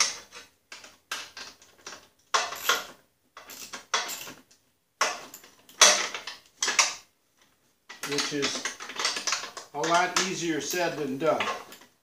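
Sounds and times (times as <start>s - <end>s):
metal bolts clinking and rattling: 0.0s - 12.0s.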